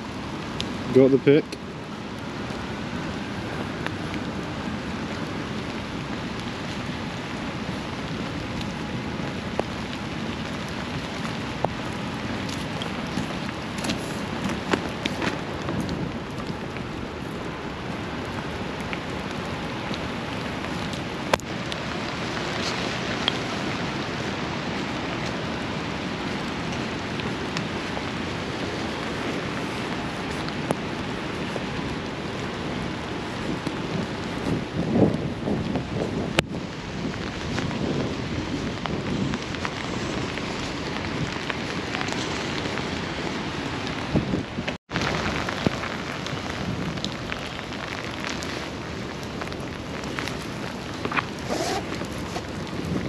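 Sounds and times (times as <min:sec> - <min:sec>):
steady rain: 0:00.0 - 0:53.0.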